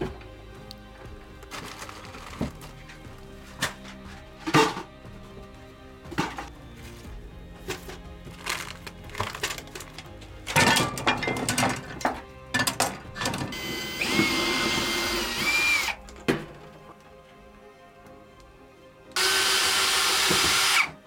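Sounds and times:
tools clattering on wood: 7.7 - 13.6.

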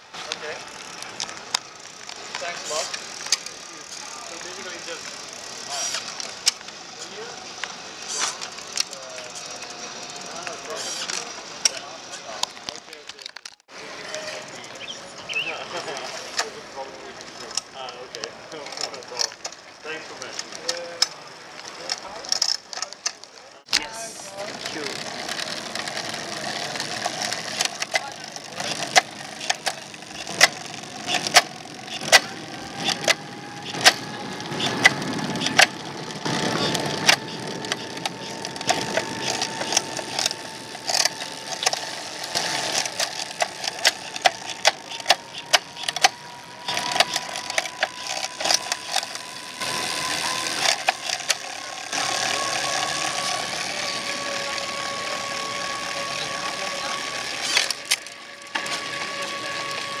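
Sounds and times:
bike drivetrain whine: 0.0 - 60.0
sharp clicks: 26.8 - 52.4, 56.2 - 58.8.

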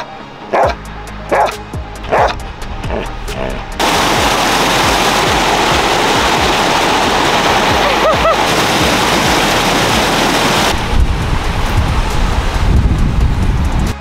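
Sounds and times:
low rumbling noise: 0.7 - 14.0
stream rushing over rocks: 3.5 - 13.9.

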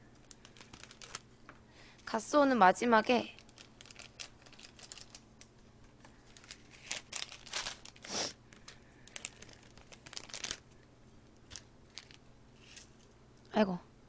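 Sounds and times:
plastic sachet crinkling and tearing: 0.1 - 1.3, 3.0 - 13.0.

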